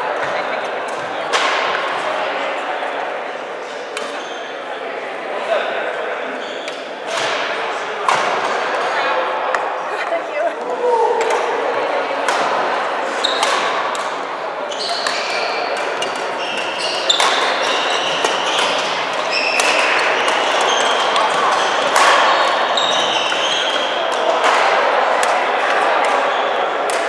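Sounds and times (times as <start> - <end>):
shoes squeaking on wooden floor: 14.7 - 21.9, 22.6 - 23.8
racket hitting shuttlecock: 14.9 - 27.0.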